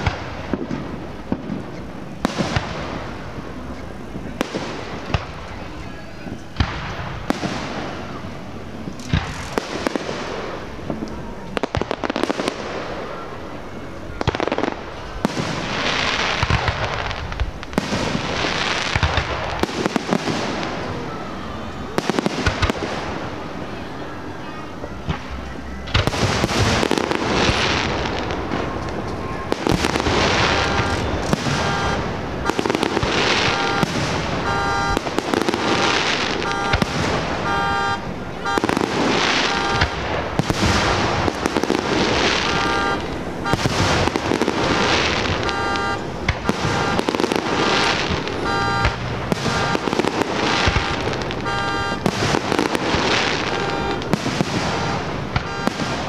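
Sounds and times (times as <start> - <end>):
fireworks bursting and crackling: 0.0 - 56.0
car alarm beeping: 29.6 - 56.0.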